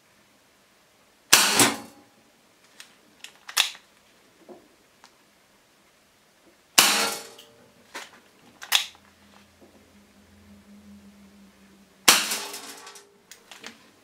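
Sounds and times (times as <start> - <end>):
toy pistol shots: 1.4 - 1.9, 6.8 - 7.4, 8.6 - 9.0, 12.1 - 13.0
toy gun handling clicks: 3.2 - 3.8, 8.6 - 9.0.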